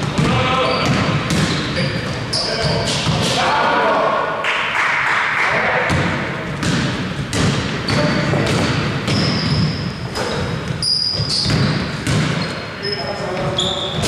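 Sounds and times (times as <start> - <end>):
basketball bouncing on court: 0.0 - 3.3, 5.8 - 12.6
voices of players and spectators: 0.0 - 14.0.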